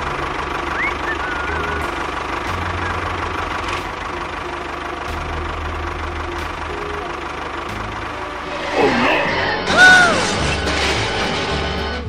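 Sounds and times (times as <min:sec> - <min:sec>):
engine idling: 0:00.0 - 0:12.0
bird chirps: 0:00.7 - 0:02.0.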